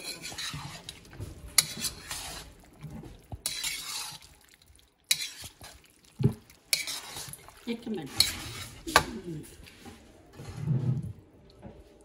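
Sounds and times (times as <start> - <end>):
metal spatula scraping wok: 0.0 - 2.7, 3.4 - 4.3, 5.1 - 5.8, 6.7 - 9.2.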